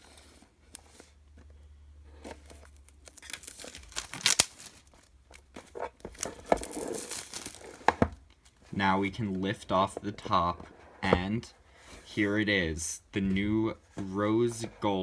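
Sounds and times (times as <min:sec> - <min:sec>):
plastic shrink-wrap crinkling: 0:02.3 - 0:07.8.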